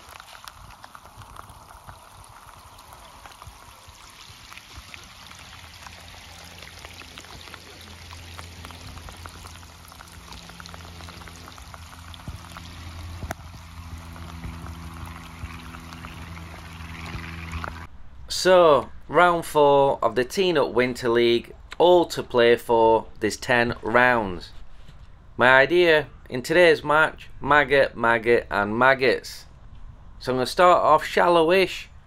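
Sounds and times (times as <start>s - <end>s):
rain falling on water: 0.0s - 17.9s
low steady hum: 0.0s - 30.3s.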